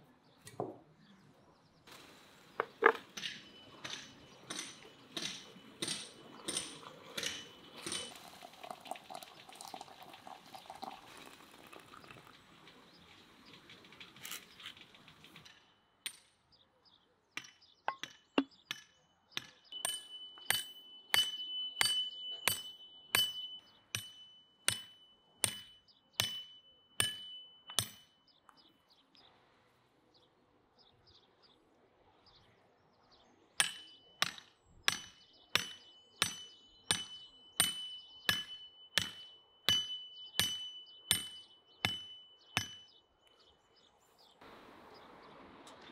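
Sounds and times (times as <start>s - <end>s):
hammer driving wooden stakes: 2.6s - 8.2s
water running into teapot: 6.8s - 12.6s.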